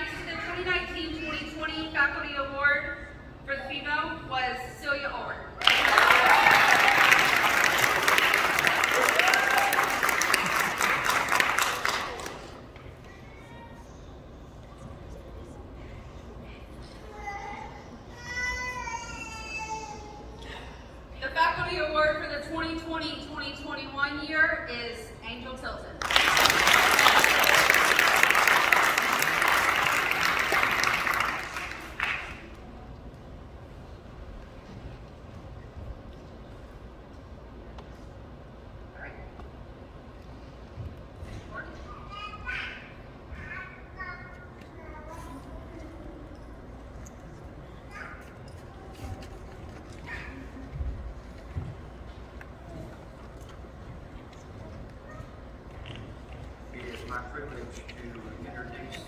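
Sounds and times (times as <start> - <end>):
audience applauding: 5.6 - 12.7, 26.0 - 32.8.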